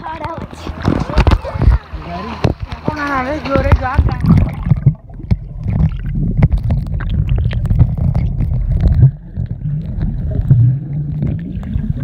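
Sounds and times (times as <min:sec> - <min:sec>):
muffled underwater rumble: 0:00.0 - 0:12.0
small clicks and crackles: 0:03.6 - 0:11.8.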